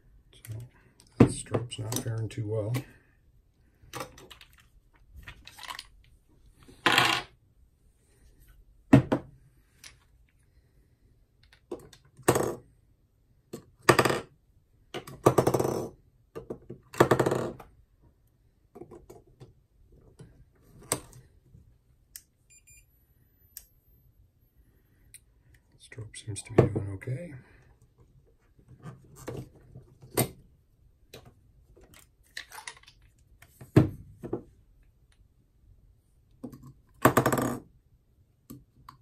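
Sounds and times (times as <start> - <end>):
batteries rattling: 4.0 - 6.1
batteries clicking and clinking: 31.8 - 33.2.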